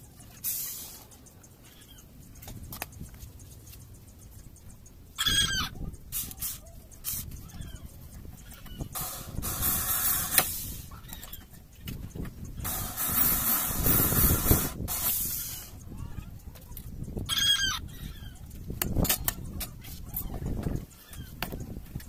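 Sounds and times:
animal call: 5.2s - 8.9s, 17.3s - 18.5s.

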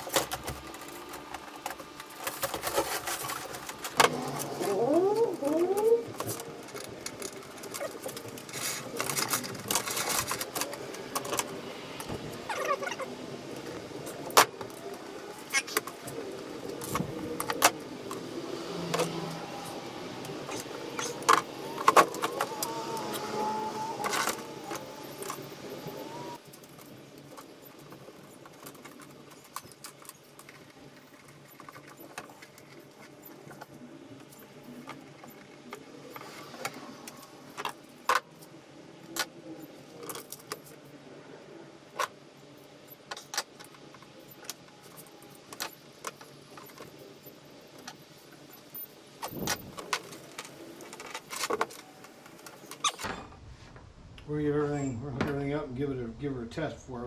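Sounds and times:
clicks and rattles of wires and tools: 0.0s - 18.3s, 18.9s - 40.9s, 41.9s - 53.4s
background noise with wavering tone: 0.0s - 57.0s.

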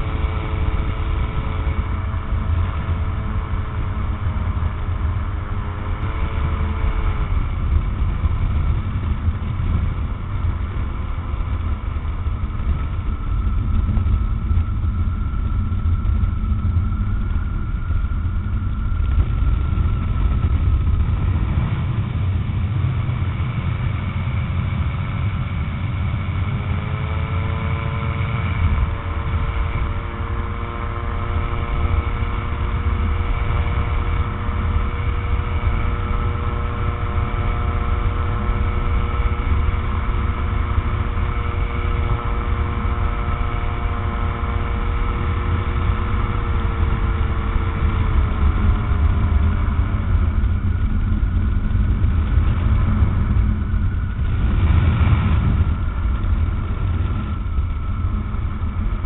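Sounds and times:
aircraft engine running in flight: 0.0s - 59.0s
wind rumble on microphone: 0.0s - 59.0s.

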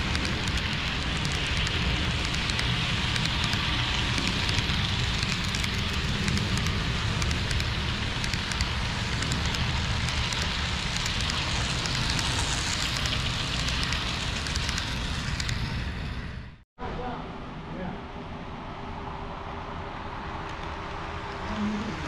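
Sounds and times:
wheel clicks on rail joints: 0.0s - 15.8s
model train rumbling: 0.0s - 16.6s.

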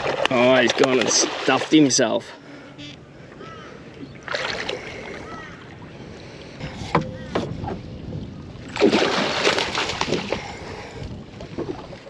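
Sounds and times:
shark splashing in water: 8.7s - 10.3s.

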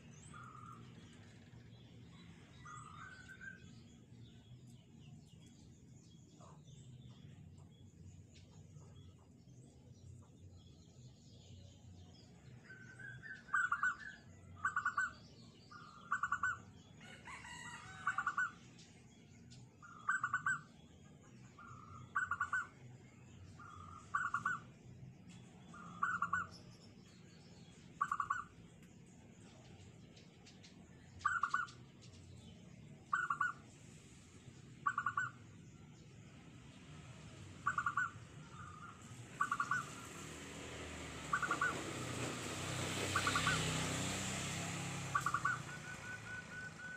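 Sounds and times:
dove cooing: 37.6s - 40.0s, 41.3s - 41.8s, 45.1s - 46.9s.

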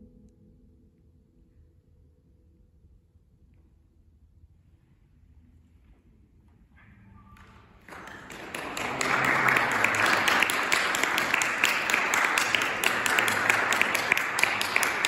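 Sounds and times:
audience applause: 7.8s - 15.0s.

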